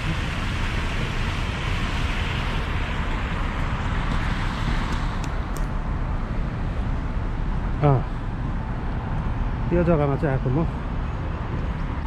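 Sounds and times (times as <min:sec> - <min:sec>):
fountain water splashing: 0:00.0 - 0:06.6.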